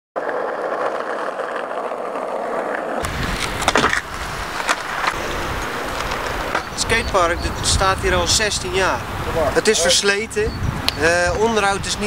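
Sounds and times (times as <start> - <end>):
skateboard wheels rolling on asphalt: 0.2 - 12.0
wind on microphone: 3.0 - 12.0.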